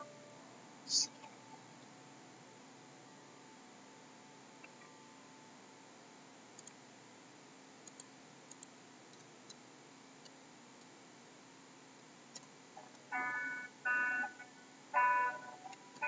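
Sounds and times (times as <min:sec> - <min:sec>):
low steady hiss: 0:00.0 - 0:16.0
computer mouse clicks: 0:06.6 - 0:06.8, 0:07.8 - 0:09.6, 0:12.3 - 0:13.0.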